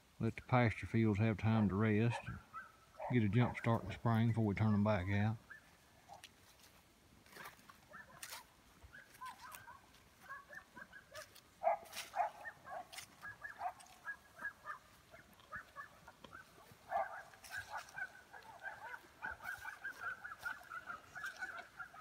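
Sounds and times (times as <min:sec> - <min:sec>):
flock of birds calling: 0:07.4 - 0:22.0.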